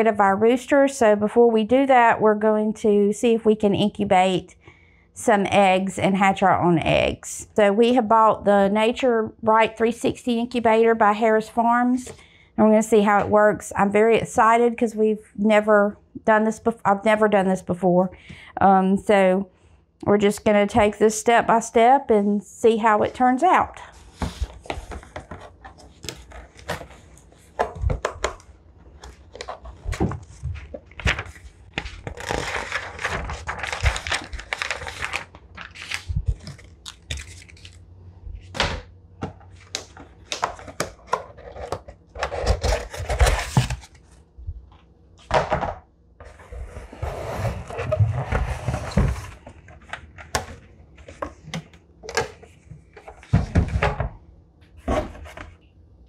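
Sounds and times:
cardboard scraping and rustling: 28.9 - 37.7, 40.0 - 44.1, 46.2 - 51.4.

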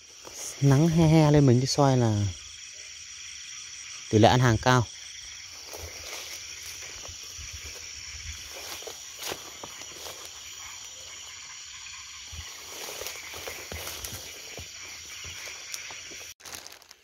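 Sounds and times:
footsteps through undergrowth: 0.0 - 1.0, 5.3 - 17.0
insects and frogs trilling: 0.0 - 17.0.

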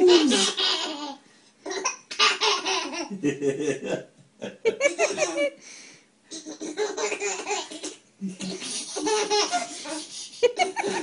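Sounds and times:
baby laughing: 0.0 - 3.2, 4.7 - 5.6, 6.3 - 11.0.

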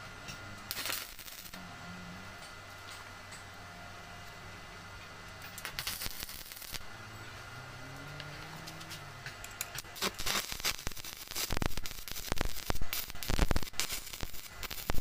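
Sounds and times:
welding arc crackling: 0.6 - 1.6, 5.4 - 6.9, 8.6 - 15.0.

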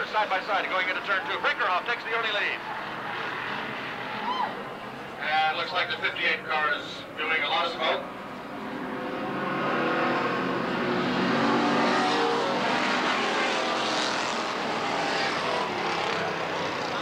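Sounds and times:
stock car engines racing: 0.0 - 17.0.

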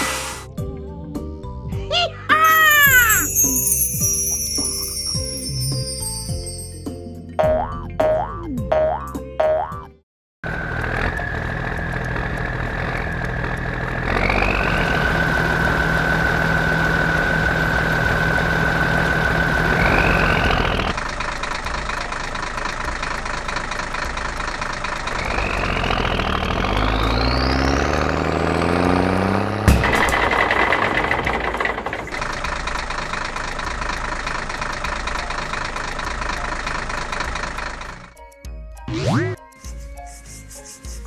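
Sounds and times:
truck engine running: 10.4 - 40.6.

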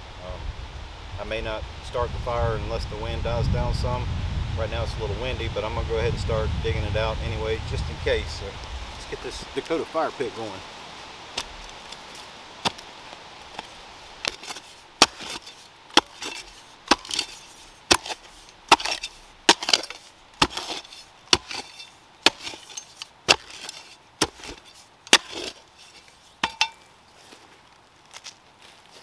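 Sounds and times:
dirt scraping: 4.6 - 29.0
digging tool chopping into ground: 13.5 - 26.8.

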